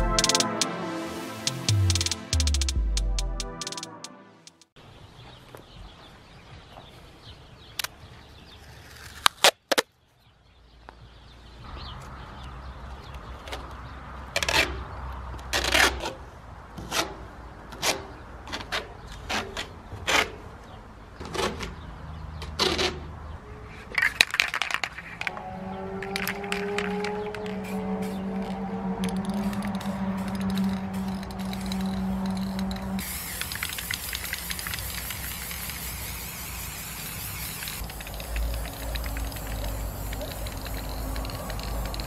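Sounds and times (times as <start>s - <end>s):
spray paint can rattling: 24.0s - 25.2s, 26.0s - 42.0s.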